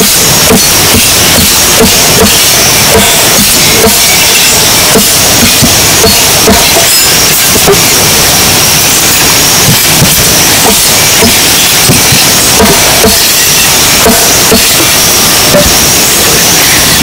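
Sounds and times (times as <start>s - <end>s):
loud steady hiss: 0.0s - 17.0s.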